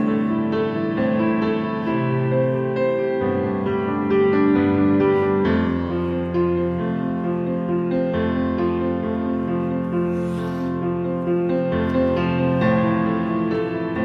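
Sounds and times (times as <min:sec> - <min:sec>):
slow piano music: 0:00.0 - 0:14.0.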